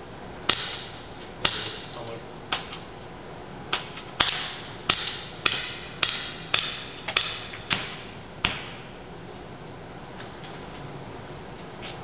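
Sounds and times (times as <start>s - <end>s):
airsoft pistol shots: 0.5s - 1.9s, 3.7s - 8.9s.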